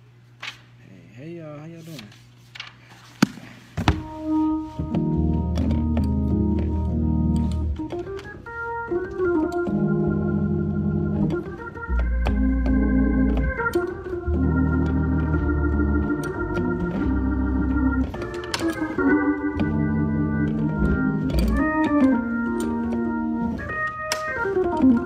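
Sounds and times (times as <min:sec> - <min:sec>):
organ playing sustained chords: 0:03.9 - 0:25.0
deep bass notes: 0:04.8 - 0:08.0, 0:09.6 - 0:18.2, 0:18.9 - 0:23.7.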